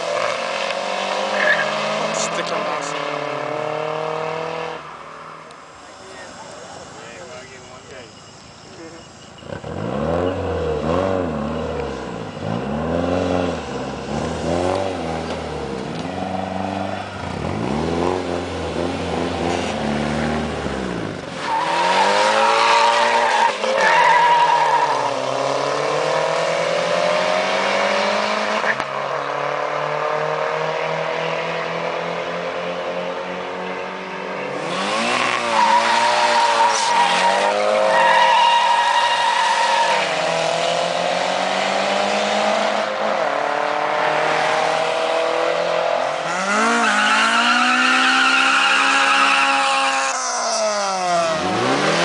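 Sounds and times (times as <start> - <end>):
car engines revving: 0.0 - 52.0
tyre squeal: 1.3 - 1.8, 21.4 - 25.2, 35.2 - 40.3, 46.2 - 51.6.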